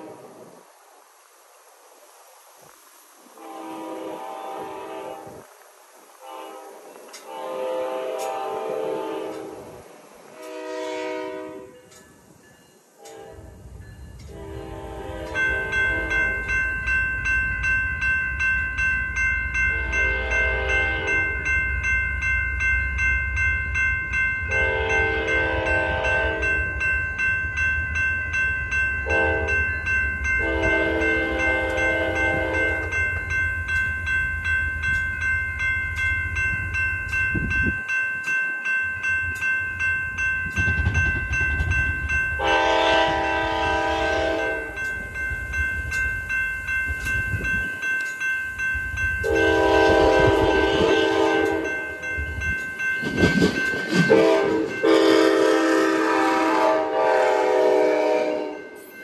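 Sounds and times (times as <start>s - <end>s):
crossing warning bells ringing: 0.0s - 0.7s, 2.9s - 59.0s
train horn blasts: 3.4s - 5.5s, 6.2s - 12.0s, 13.0s - 16.4s, 19.7s - 21.5s, 24.5s - 26.7s, 29.0s - 29.7s, 30.4s - 33.0s, 42.4s - 44.8s, 49.2s - 51.8s, 53.9s - 58.8s
diesel locomotive rumbling: 39.1s - 58.6s.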